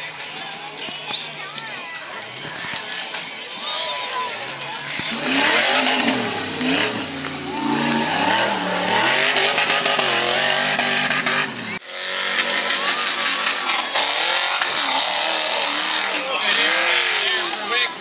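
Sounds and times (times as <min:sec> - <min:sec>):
truck engines revving: 0:04.2 - 0:18.0.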